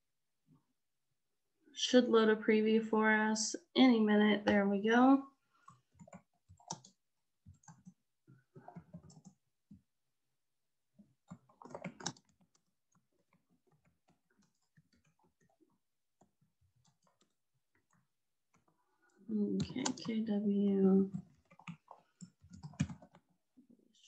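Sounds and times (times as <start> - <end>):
typing on computer keyboard: 5.7 - 8.0, 8.6 - 9.4, 11.2 - 18.8, 19.5 - 20.2, 21.1 - 23.4.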